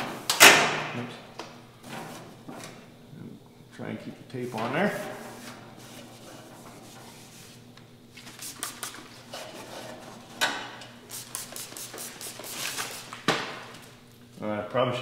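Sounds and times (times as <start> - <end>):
spray bottle spritzes hissing: 11.1 - 13.0.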